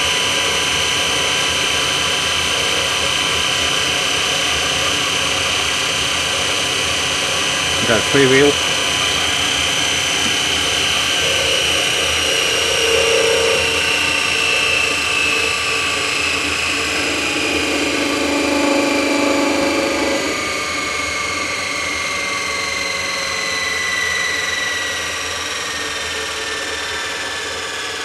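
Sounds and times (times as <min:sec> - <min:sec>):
electric motor whine: 0:00.0 - 0:28.0
low hum: 0:07.7 - 0:25.0.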